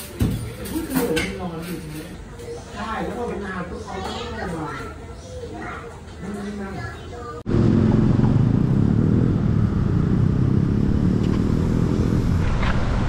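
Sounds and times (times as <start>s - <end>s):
loud road traffic: 7.5s - 13.0s
motorcycle engines running: 7.5s - 13.0s.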